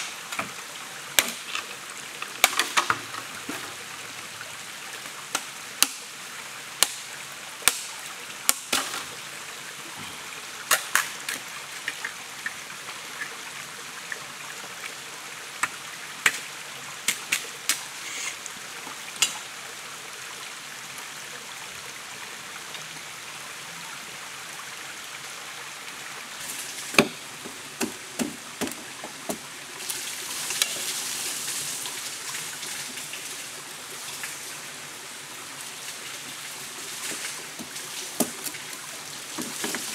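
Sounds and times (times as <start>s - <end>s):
stream rushing: 0.0s - 39.9s
machete chopping bamboo: 1.2s - 1.5s, 5.4s - 6.1s, 6.8s - 7.9s, 8.5s - 9.0s, 26.9s - 27.2s, 27.8s - 29.4s.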